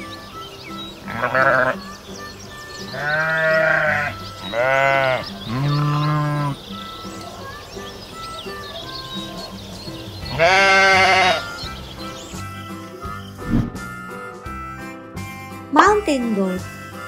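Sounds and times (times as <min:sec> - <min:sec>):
soft background music: 0:00.0 - 0:17.0
sheep bleating: 0:01.0 - 0:01.9, 0:02.9 - 0:06.7, 0:10.2 - 0:11.8.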